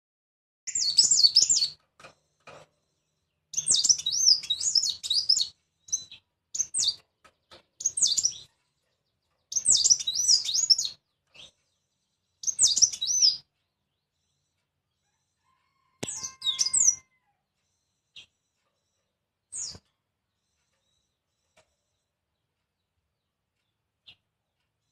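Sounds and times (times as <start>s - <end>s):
songbird warbling: 3.6s - 7.0s, 9.5s - 11.0s, 12.4s - 13.4s, 16.0s - 17.0s.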